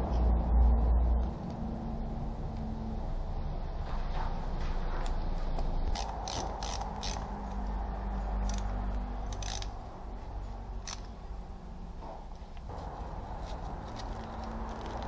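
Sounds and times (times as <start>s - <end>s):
short ratchety clicks: 5.9s - 7.3s, 9.3s - 9.8s, 10.8s - 11.1s.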